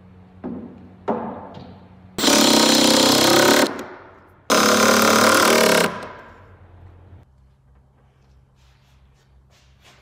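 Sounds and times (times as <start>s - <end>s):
impact driver driving screws: 2.2s - 3.9s, 4.5s - 6.2s.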